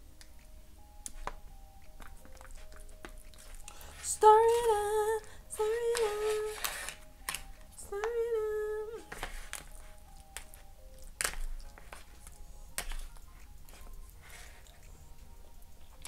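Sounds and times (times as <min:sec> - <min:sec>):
woman humming: 0:04.0 - 0:06.7, 0:07.8 - 0:09.2.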